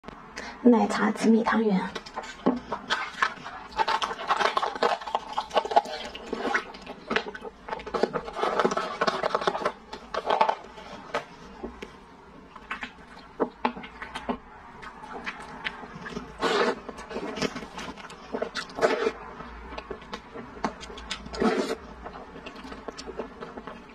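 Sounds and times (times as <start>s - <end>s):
plastic pouch crinkling: 2.0s - 11.3s
slurping and chewing: 2.0s - 23.9s.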